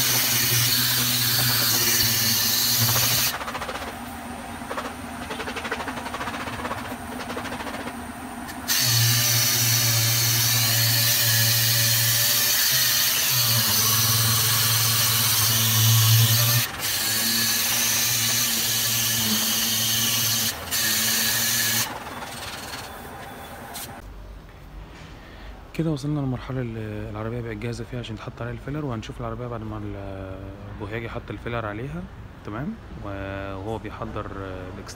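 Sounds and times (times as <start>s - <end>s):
pneumatic sander on metal: 0.0s - 24.0s.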